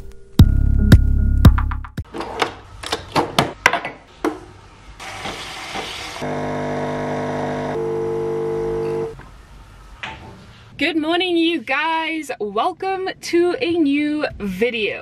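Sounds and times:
buzzing pump hum: 6.2s - 9.2s.

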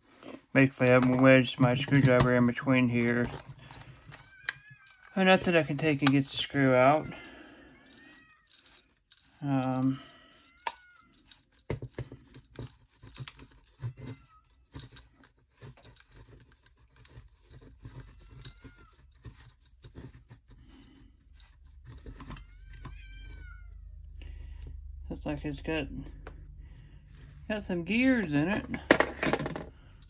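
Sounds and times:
screwdriver and plastic clicking: 3.0s - 6.3s, 10.3s - 20.2s.

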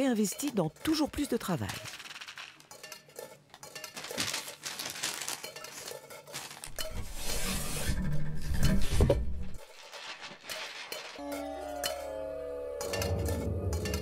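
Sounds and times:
stiff paper rustling and crackling: 3.9s - 6.8s, 9.6s - 11.2s.

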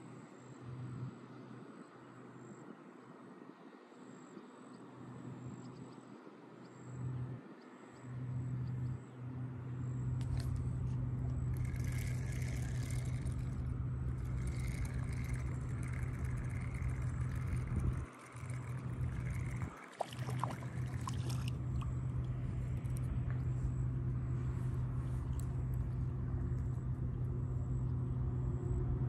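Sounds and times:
motor hum: 6.7s - 29.0s.

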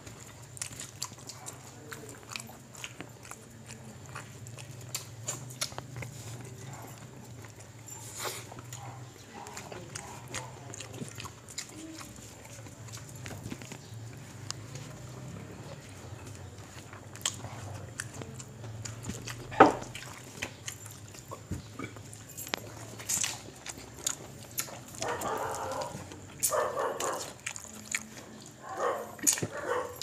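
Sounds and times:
chewing and mouth sounds: 0.0s - 30.0s.

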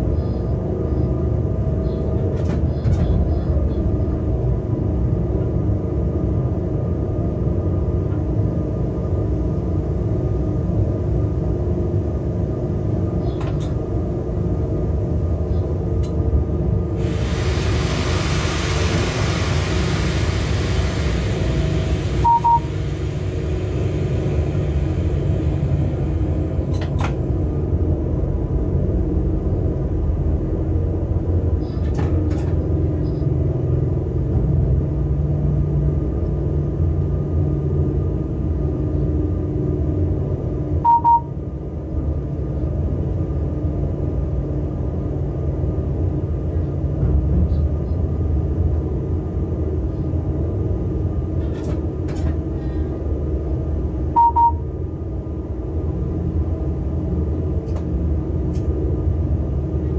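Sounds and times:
locomotive cab rumbling: 0.0s - 59.9s
hiss: 17.0s - 26.5s
short double beep: 22.2s - 22.8s, 40.8s - 41.3s.

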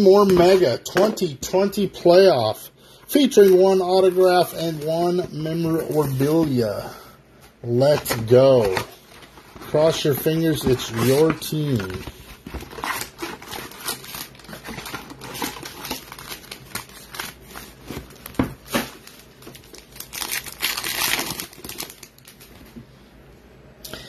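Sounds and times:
cardboard and wrappers crinkling tearing: 7.8s - 22.6s.

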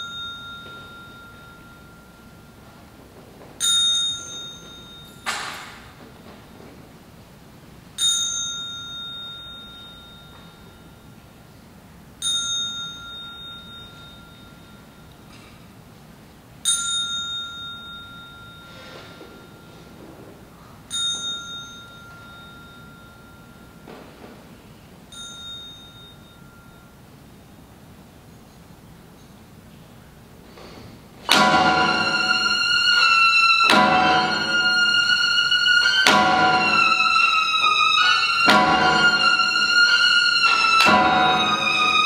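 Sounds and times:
small metal bell ringing: 0.0s - 2.9s, 3.6s - 6.0s, 8.0s - 11.4s, 12.2s - 15.6s, 16.6s - 20.0s, 20.9s - 24.1s, 25.1s - 27.3s.

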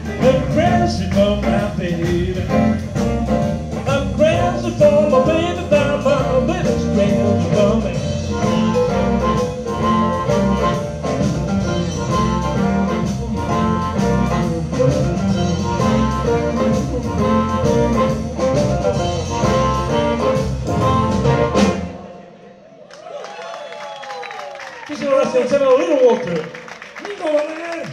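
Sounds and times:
drums keeping a steady beat: 0.0s - 21.9s
bass guitar: 0.0s - 22.1s
electric guitars: 0.0s - 22.1s
piano: 0.0s - 22.5s
amplified harmonica wailing: 8.1s - 22.2s.

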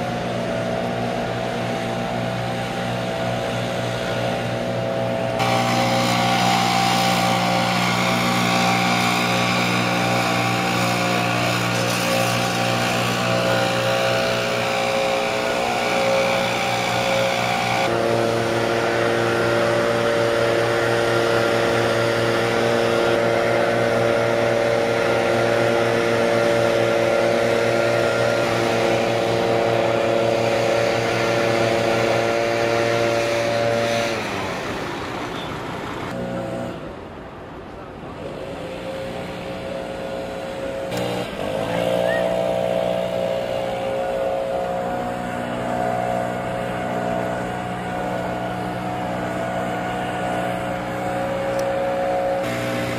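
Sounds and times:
leaf blower running: 0.0s - 37.1s, 38.1s - 52.9s.

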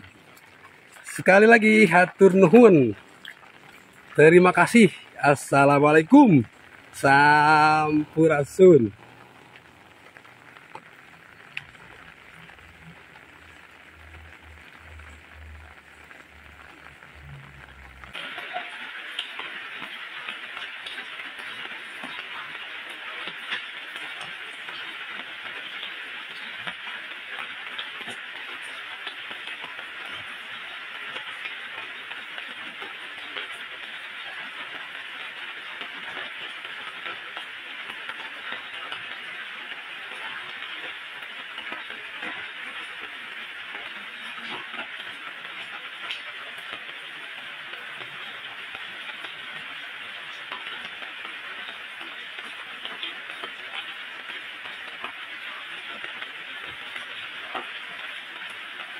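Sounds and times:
water drips tapping: 0.0s - 43.2s
steady rain hiss: 0.0s - 58.9s.

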